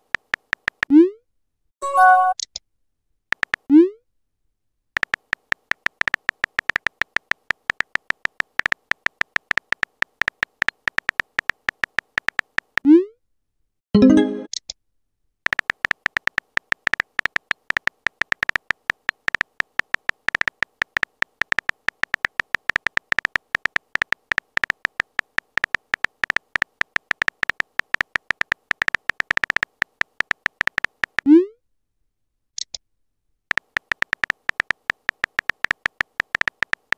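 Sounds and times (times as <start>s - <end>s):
keyboard typing clicks: 0.0s - 0.9s, 3.3s - 3.7s, 5.0s - 12.9s, 15.5s - 31.3s, 33.5s - 36.9s.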